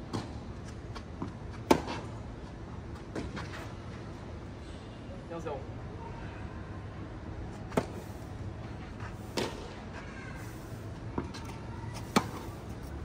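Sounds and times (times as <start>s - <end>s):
tennis ball struck with rackets: 12.0s - 12.6s.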